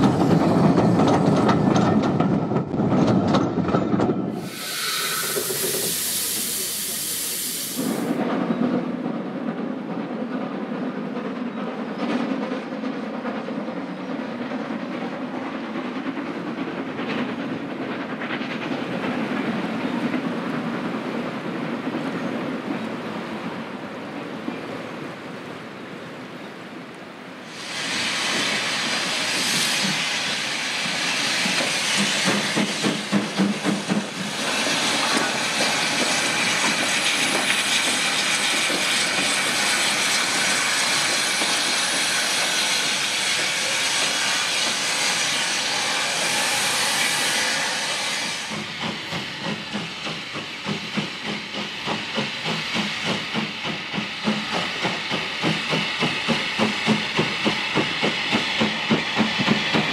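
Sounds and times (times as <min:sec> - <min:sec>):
loud steam hiss: 0:04.3 - 0:08.2, 0:27.4 - 0:59.9
steam locomotive exhaust chuffs: 0:04.3 - 0:08.2, 0:27.5 - 0:59.9.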